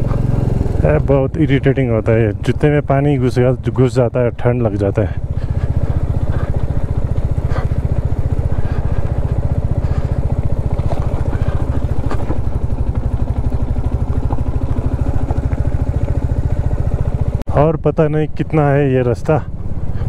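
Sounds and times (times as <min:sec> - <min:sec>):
motorcycle engine running: 0:00.0 - 0:20.0
motorcycle clattering over stones: 0:05.4 - 0:17.0.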